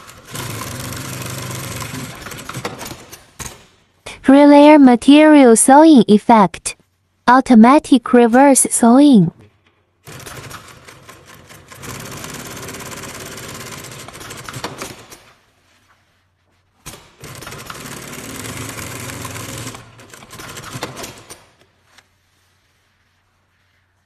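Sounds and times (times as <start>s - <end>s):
industrial sewing machine stitching: 0.0s - 3.3s, 10.0s - 15.2s, 16.9s - 21.5s.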